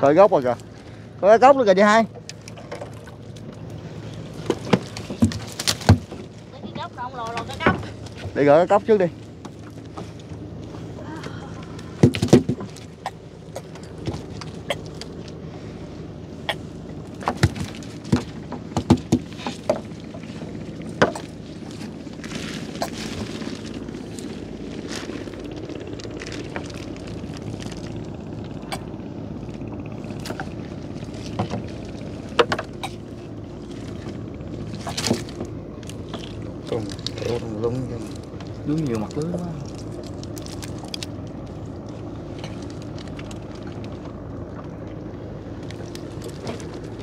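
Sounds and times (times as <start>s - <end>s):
steady low hum: 0.0s - 47.0s
net and floats knocking on boards: 4.4s - 6.3s, 12.0s - 14.5s, 17.2s - 19.9s.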